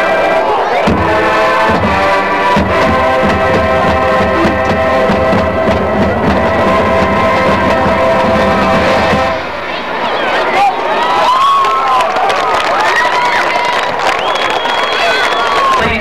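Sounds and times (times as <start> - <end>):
brass sustained chords: 0.0 - 10.4
drum hits: 0.8 - 9.6.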